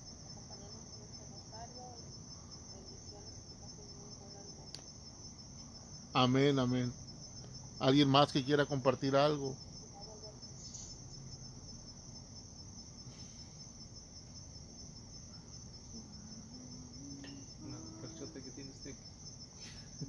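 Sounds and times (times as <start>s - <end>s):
crickets chirring: 0.0s - 20.0s.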